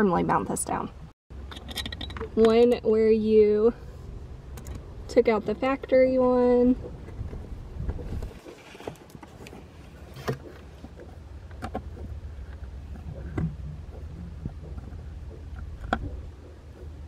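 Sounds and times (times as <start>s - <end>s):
low rumble: 3.0s - 8.4s, 10.7s - 17.0s.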